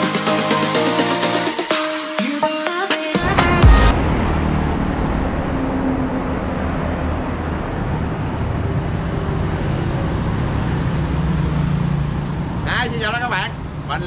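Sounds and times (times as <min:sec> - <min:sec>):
passing car engines: 0:03.2 - 0:14.0
passing motorbike engines: 0:03.5 - 0:14.0.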